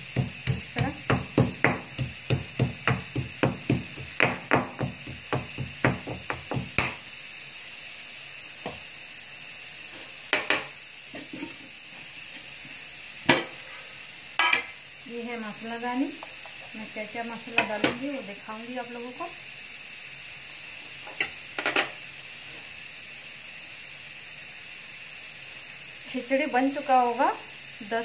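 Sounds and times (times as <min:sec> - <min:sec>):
pestle thudding in stone mortar: 0:00.0 - 0:07.0.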